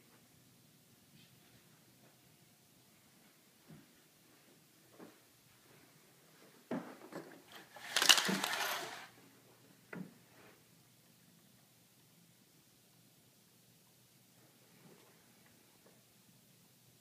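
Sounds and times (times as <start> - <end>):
clattering rattle of clicks: 7.8 - 9.0.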